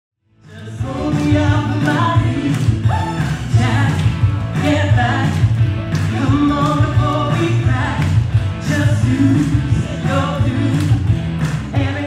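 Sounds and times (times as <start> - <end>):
rock and roll backing track: 0.4 - 12.0
woman singing into a microphone: 0.5 - 5.4.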